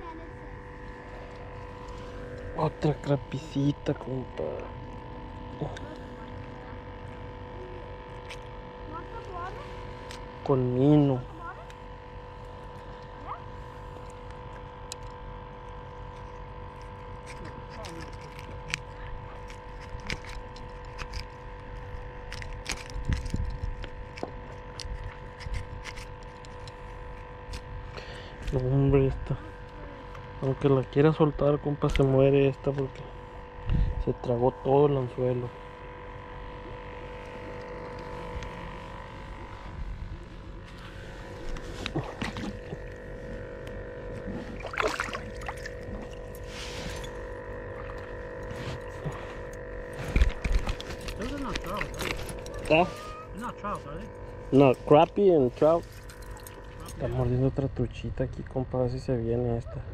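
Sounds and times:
steady multi-tone hum: 0:00.0 - 0:59.9
pliers clicking and scraping: 0:16.1 - 0:26.7
fish splashing in shallow water: 0:44.2 - 0:52.8.

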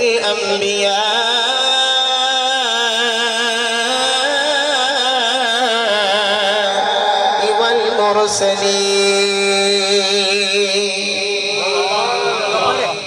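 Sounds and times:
man chanting: 0:00.0 - 0:13.0.

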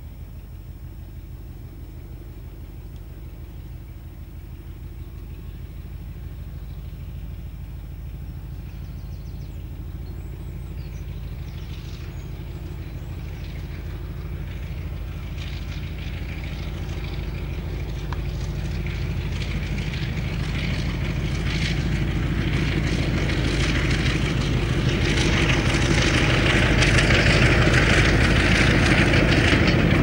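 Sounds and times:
diesel locomotive engine drone: 0:00.0 - 0:30.0
train rattling clatter: 0:11.0 - 0:30.0.

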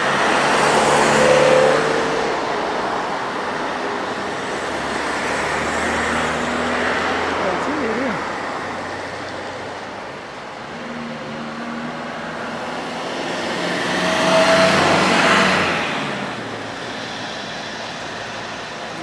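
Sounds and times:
vehicle road noise passing: 0:00.0 - 0:19.0.

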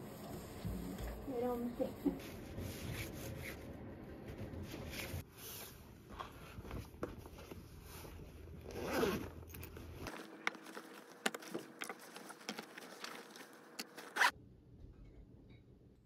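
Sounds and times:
rummaging in a bag: 0:04.8 - 0:14.3
bag zipper pulled open: 0:08.7 - 0:09.4, 0:14.0 - 0:14.3.

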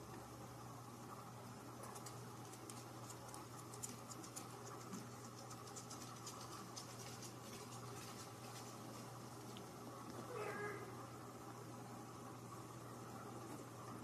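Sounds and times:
low steady hum: 0:00.0 - 0:14.0
kitten scratching on fabric: 0:01.8 - 0:09.2.

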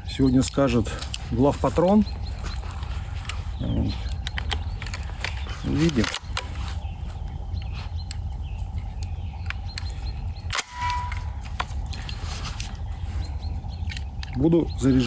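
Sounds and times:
low rumble: 0:00.0 - 0:15.0
shotgun metallic clicks: 0:04.1 - 0:06.6, 0:08.9 - 0:12.2.

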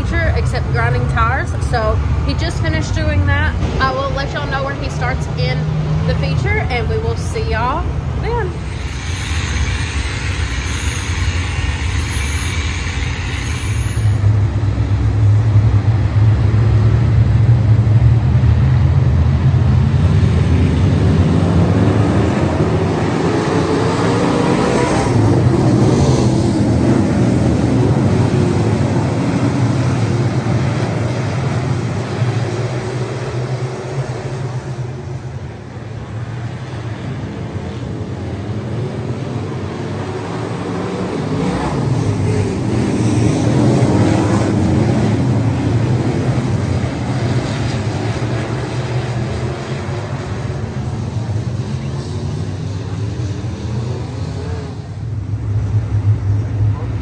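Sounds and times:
race car engines passing: 0:18.8 - 0:57.0.

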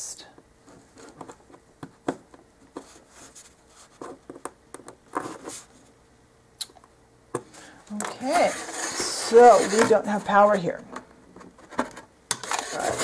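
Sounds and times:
rubbing scrapes: 0:08.1 - 0:10.4.

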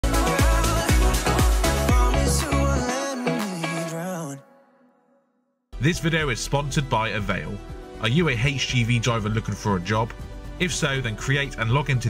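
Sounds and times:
dance music: 0:00.0 - 0:04.4.

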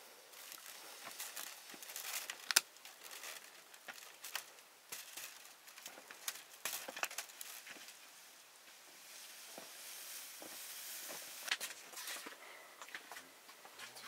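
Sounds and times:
rustling: 0:00.0 - 0:14.0.

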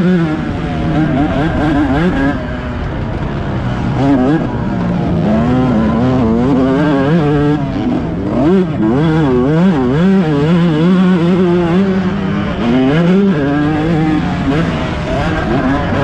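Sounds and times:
dirt bike engine revving: 0:00.0 - 0:16.0.

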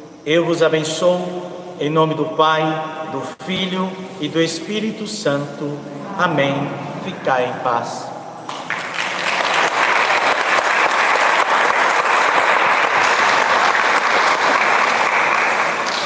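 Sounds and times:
crowd applauding: 0:08.5 - 0:16.0.

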